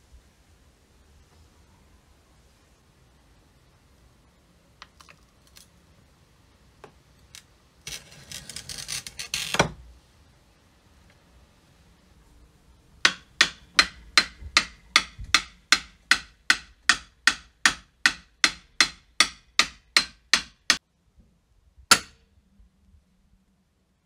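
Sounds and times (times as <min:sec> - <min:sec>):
hammer blows ringing: 0:13.1 - 0:20.8, 0:21.9 - 0:22.2.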